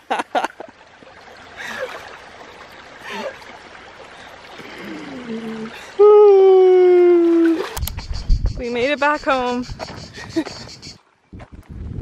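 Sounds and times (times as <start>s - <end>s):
water sloshing: 0.0s - 6.0s, 7.2s - 8.1s
stream water trickling: 0.0s - 12.0s.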